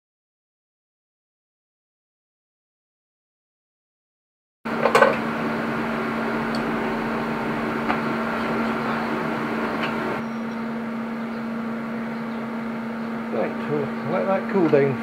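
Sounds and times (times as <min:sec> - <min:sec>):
welder electrical hum and hiss: 0:04.7 - 0:15.0.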